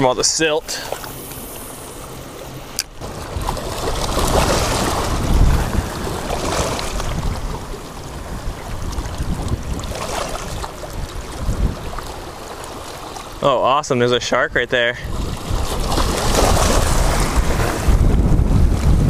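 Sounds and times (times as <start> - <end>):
small waves lapping on shore: 0.0 - 19.0
wind buffeting microphone: 3.0 - 13.1, 14.4 - 19.0.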